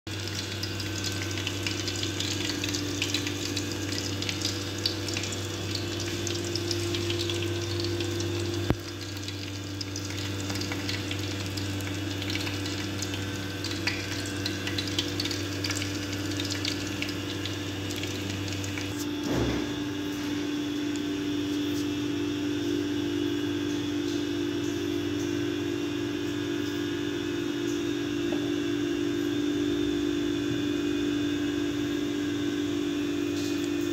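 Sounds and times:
fish sizzling in oil: 0:00.1 - 0:19.1.

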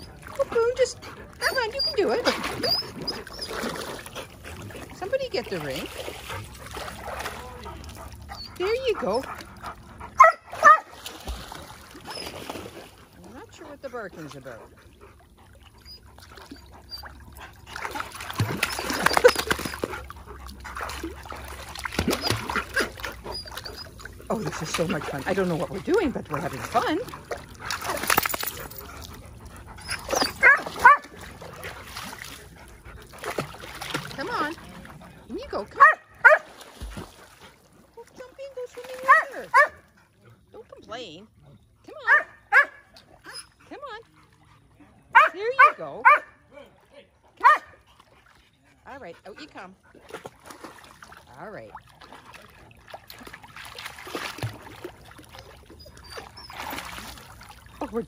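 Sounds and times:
pool water splashing: 0:00.0 - 0:58.0
dog yelping barks: 0:10.1 - 0:11.0, 0:29.8 - 0:31.1, 0:35.8 - 0:36.5, 0:39.1 - 0:39.8, 0:42.1 - 0:43.4, 0:45.2 - 0:46.4, 0:47.4 - 0:47.8.

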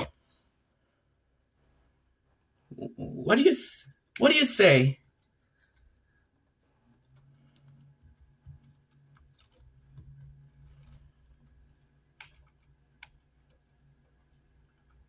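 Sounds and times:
faint low hum: 0:04.9 - 0:15.0
computer mouse clicks: 0:06.9 - 0:13.7.

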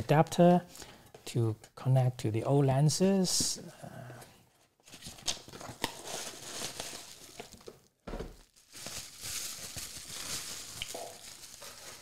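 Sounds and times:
cardboard and paper rustling: 0:04.8 - 0:12.0.

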